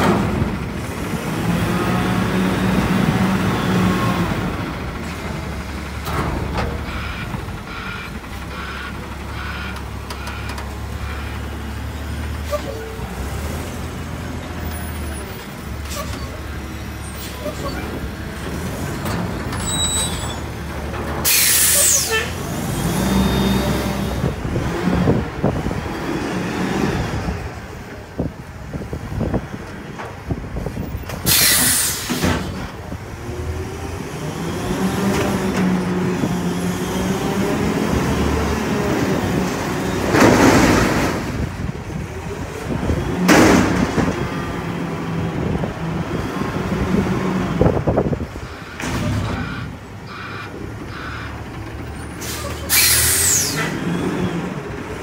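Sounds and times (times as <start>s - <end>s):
garbage truck engine revving: 0.0s - 29.3s, 31.1s - 55.0s
sharp air hisses: 31.3s - 32.2s, 52.2s - 53.7s.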